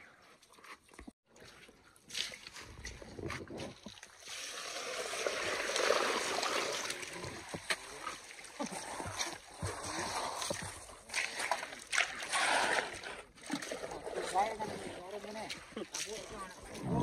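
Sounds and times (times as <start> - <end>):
muddy water rushing over gravel: 4.1 - 11.1.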